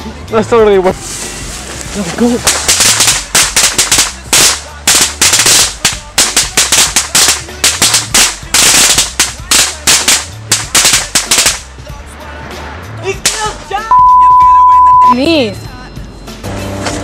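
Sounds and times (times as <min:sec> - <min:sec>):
string of firecrackers crackling: 0:00.8 - 0:12.4, 0:13.2 - 0:13.8.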